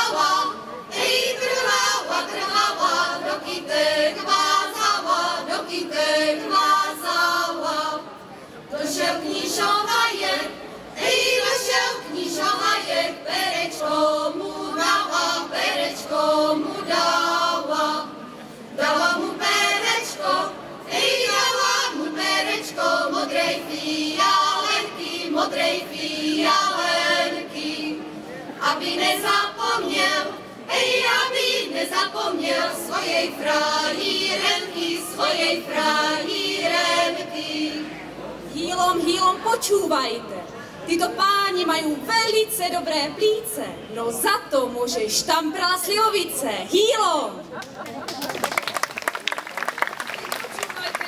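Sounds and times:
women's choir singing unaccompanied: 0.0 - 40.2.

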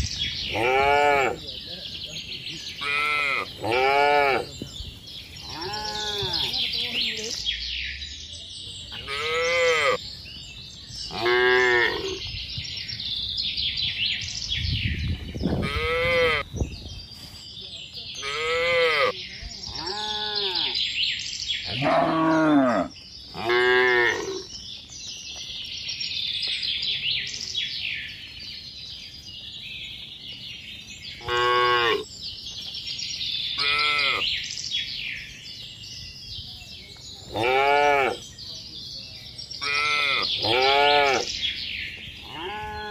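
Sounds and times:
birds chirping: 0.0 - 42.9
cattle mooing: 21.7 - 24.4.

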